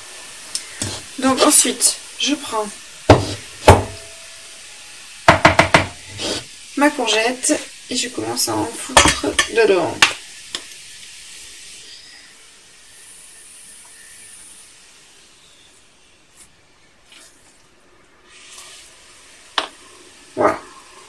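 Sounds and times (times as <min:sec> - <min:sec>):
soft hiss of sliding pulp: 0:00.0 - 0:02.3, 0:06.0 - 0:07.8, 0:11.0 - 0:20.2
sharp knocks: 0:03.1 - 0:04.1, 0:05.3 - 0:06.0.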